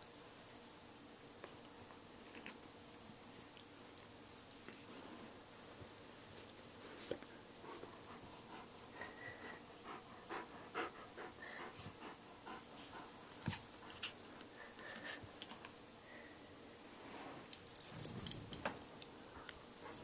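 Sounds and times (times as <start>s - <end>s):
dog panting softly: 7.2s - 15.4s, 19.2s - 20.0s.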